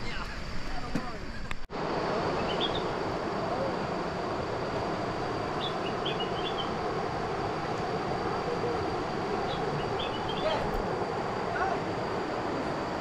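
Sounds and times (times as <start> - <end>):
river water rushing over rocks: 1.8 - 13.0
bird chirping: 2.4 - 3.0, 5.6 - 6.8, 8.4 - 10.8.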